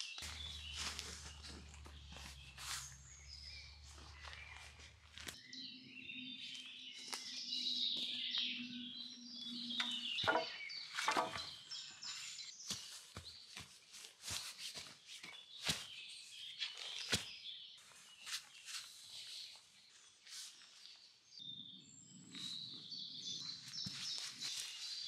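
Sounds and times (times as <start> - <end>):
birds chirping: 0.0 - 14.0
sticks snapping and rustling: 4.0 - 5.4.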